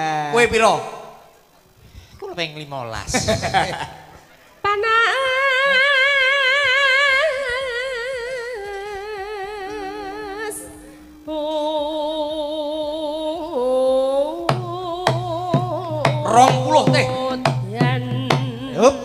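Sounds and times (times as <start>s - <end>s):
woman singing through a microphone: 4.6s - 19.0s.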